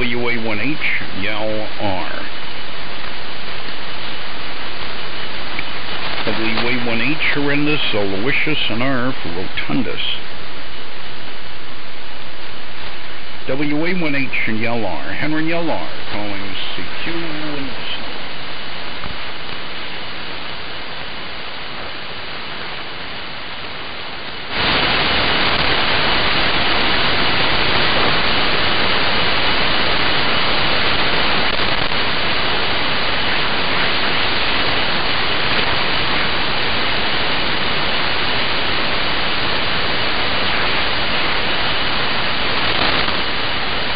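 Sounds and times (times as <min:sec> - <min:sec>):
radio static hiss: 0:00.0 - 0:43.9.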